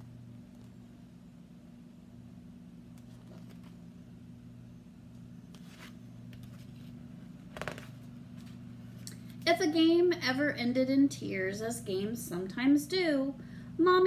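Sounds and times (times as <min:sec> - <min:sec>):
steady low hum: 0:00.0 - 0:14.0
paper pages rustling: 0:03.0 - 0:03.8, 0:05.5 - 0:08.9.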